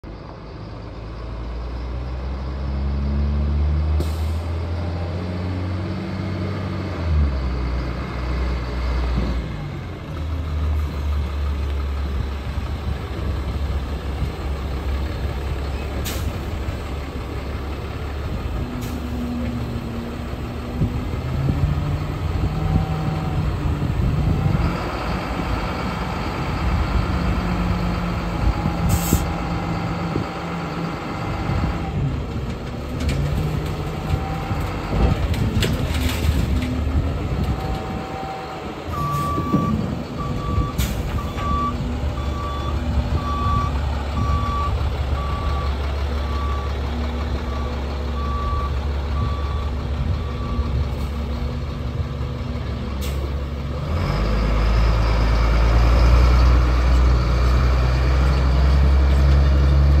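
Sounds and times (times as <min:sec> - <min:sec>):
diesel truck engine running: 0:00.0 - 1:00.0
air brake hiss: 0:04.0 - 0:04.5, 0:16.0 - 0:16.4, 0:28.9 - 0:29.3.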